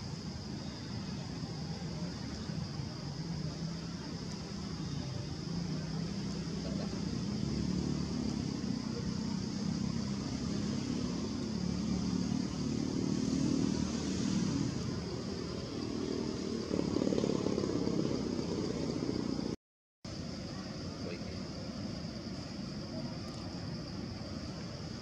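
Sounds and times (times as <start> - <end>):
road traffic rumble: 0.0 - 25.0
vehicle passing close by: 5.7 - 19.6.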